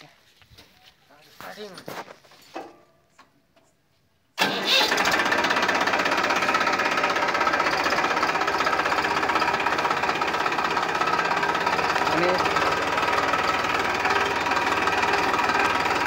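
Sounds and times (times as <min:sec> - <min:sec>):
tractor diesel engine chugging: 0:04.4 - 0:16.0.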